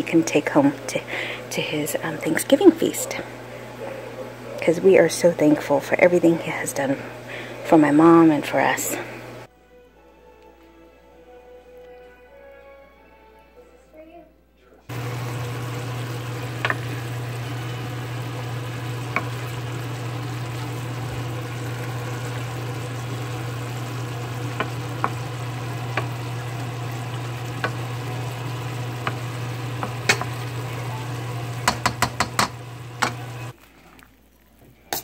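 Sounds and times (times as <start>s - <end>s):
vegetables sizzling in a skillet: 14.9s - 33.6s
wooden spoon clicking against pan: 31.6s - 33.2s.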